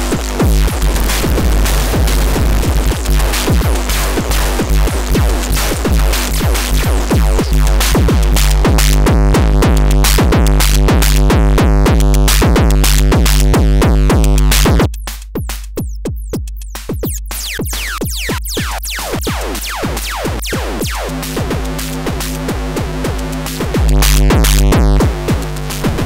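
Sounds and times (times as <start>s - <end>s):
low drone: 0.0s - 7.1s
distorted drum machine pattern: 0.0s - 26.0s.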